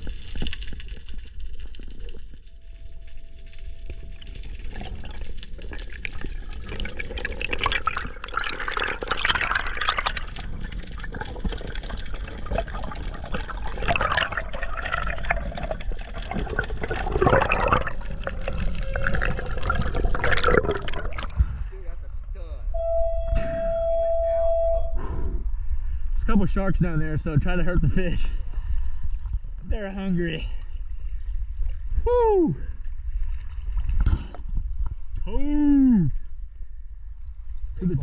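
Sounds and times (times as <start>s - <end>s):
underwater water rushing and bubbling: 0.0s - 21.7s
steady low rumble: 17.9s - 35.3s.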